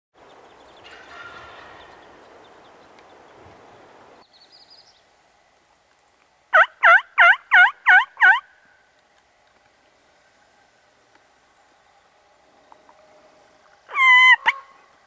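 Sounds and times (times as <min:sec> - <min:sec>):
turkey calling: 0:06.5 - 0:08.5, 0:13.9 - 0:15.0.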